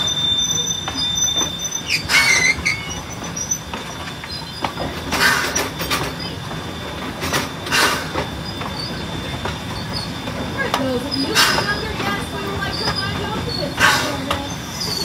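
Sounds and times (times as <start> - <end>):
steam locomotive running gear rumble: 0.0 - 15.0
loud rushing steam bursts: 7.6 - 8.2.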